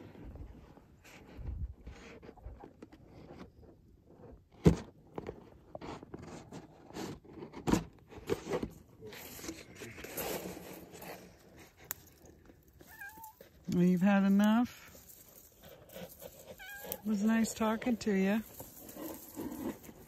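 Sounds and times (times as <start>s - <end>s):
crunching in dry leaves: 9.1s - 20.0s.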